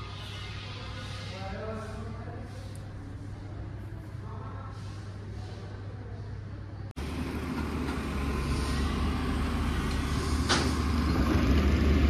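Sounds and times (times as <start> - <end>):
heavy machinery rumbling: 7.0 - 12.0.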